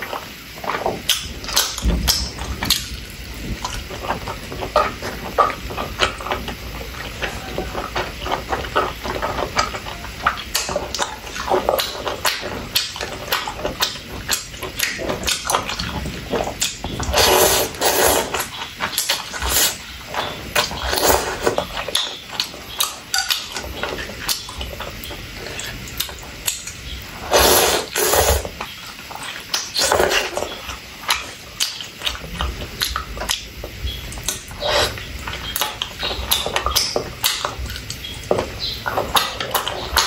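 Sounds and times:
wet chewing: 0:00.0 - 0:40.0
slurping noodles: 0:03.4 - 0:22.0, 0:27.1 - 0:31.4, 0:34.3 - 0:36.7.

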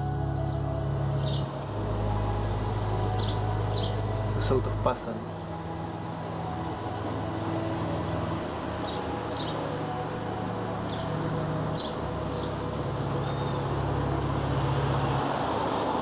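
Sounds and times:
road traffic rumble: 0:00.0 - 0:16.0
bird chirps: 0:03.0 - 0:04.6, 0:11.7 - 0:13.9.

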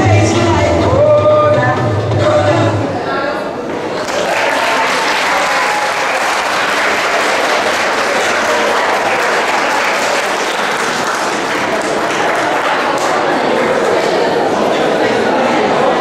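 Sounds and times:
audience applauding: 0:04.0 - 0:14.2.

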